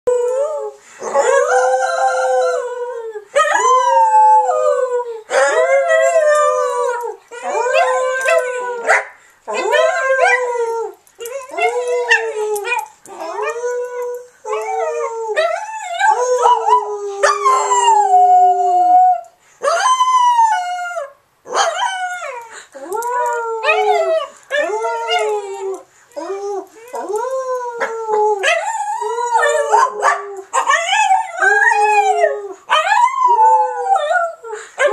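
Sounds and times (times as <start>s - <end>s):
dog howling: 3.4s - 8.9s, 21.6s - 34.9s.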